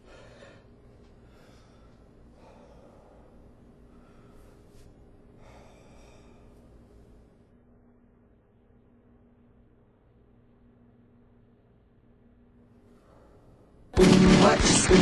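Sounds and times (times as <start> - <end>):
person breathing heavily: 0.0 - 6.8
steady low hum: 0.0 - 15.0.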